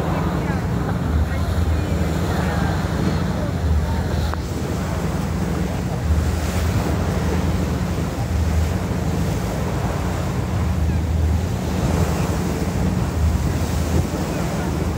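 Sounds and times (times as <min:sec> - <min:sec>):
water rushing and churning: 0:00.0 - 0:14.9
wind buffeting microphone: 0:00.0 - 0:14.9.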